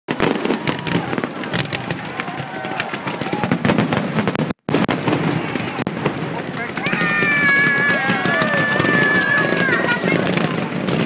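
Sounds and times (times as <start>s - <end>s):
fireworks popping and crackling: 0.1s - 11.0s.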